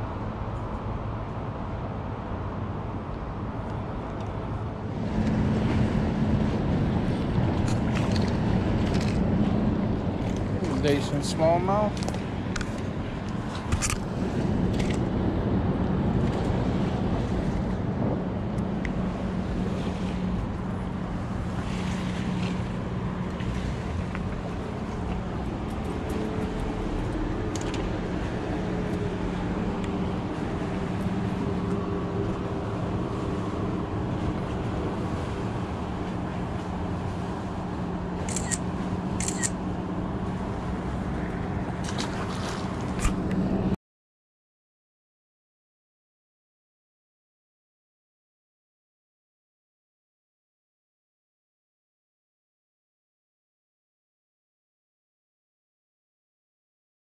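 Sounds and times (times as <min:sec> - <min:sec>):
low engine hum: 0:00.0 - 0:43.8.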